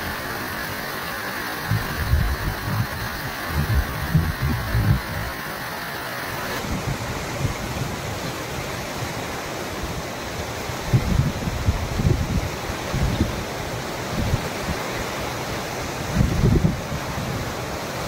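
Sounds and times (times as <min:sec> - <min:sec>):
water rushing over weir onto rocks: 0:00.0 - 0:18.0
wind buffeting microphone: 0:01.6 - 0:05.4, 0:06.6 - 0:08.7, 0:10.7 - 0:14.9, 0:16.0 - 0:18.0.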